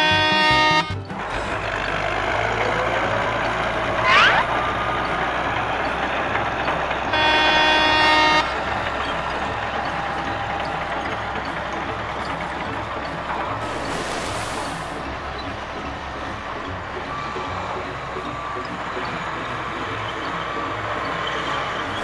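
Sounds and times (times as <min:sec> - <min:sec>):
truck horn honking: 0:00.0 - 0:05.1, 0:07.0 - 0:09.2
truck engine running: 0:00.0 - 0:22.0
short rising squeal: 0:01.2 - 0:05.1, 0:13.4 - 0:15.6
toy excavator digging in sand: 0:13.5 - 0:15.2.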